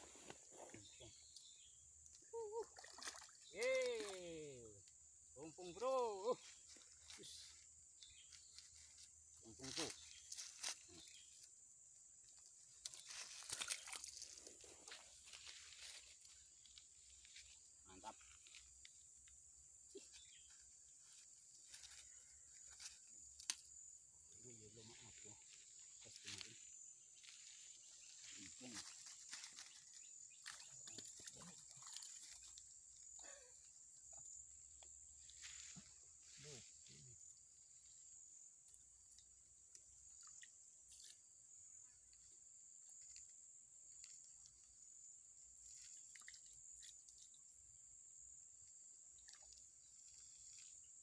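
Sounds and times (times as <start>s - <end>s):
insects chirring: 0.0s - 51.0s.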